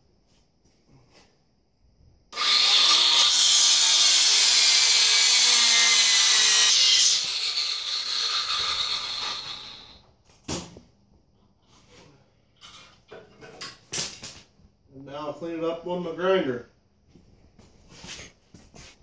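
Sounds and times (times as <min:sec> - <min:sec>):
angle grinder cutting metal: 0:02.4 - 0:10.0.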